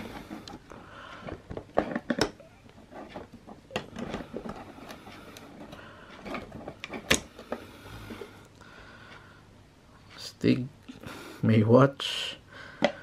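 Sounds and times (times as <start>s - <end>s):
handling clicks and rustles: 0.0s - 8.2s.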